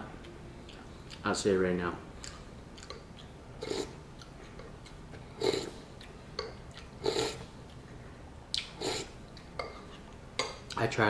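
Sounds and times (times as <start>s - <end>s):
person slurping and chewing noodles: 2.2s - 4.7s, 5.3s - 7.6s, 8.5s - 9.2s.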